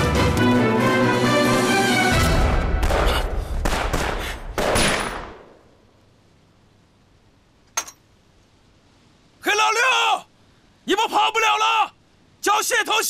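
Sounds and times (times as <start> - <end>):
rifle gunshots: 2.8 - 5.6.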